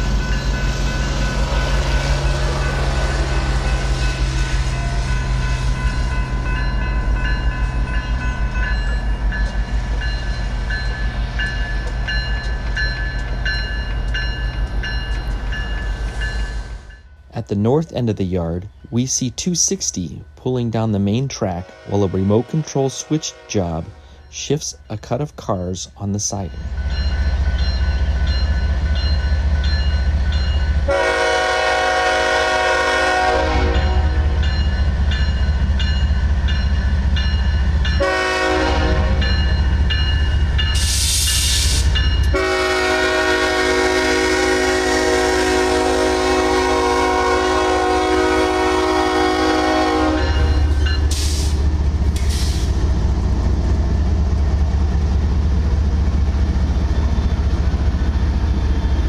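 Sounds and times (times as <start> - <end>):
locomotive engines rumbling: 0.0 - 59.0
rolling train cars: 0.0 - 59.0
train horn blasts: 21.5 - 24.2, 30.9 - 34.4, 38.0 - 39.3, 42.3 - 50.7.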